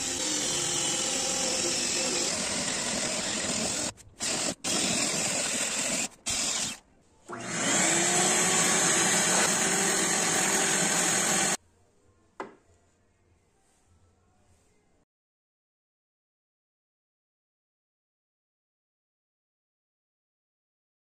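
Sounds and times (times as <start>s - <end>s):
electric drill boring into wood: 0.0s - 11.6s.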